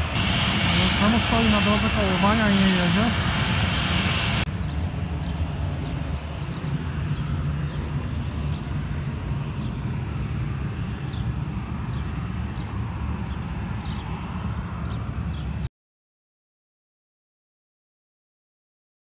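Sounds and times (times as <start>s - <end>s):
steady low rumble: 0.0s - 15.7s.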